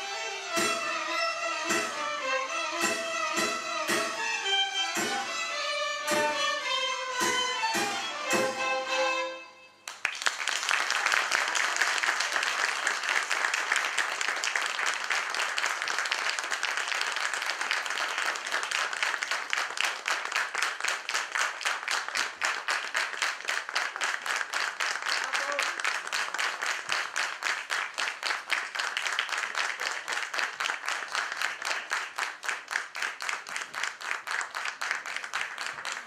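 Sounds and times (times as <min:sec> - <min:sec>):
violin ensemble playing chords: 0:00.0 - 0:09.8
rhythmic clapping in unison: 0:00.0 - 0:36.0
audience applause: 0:09.8 - 0:36.0.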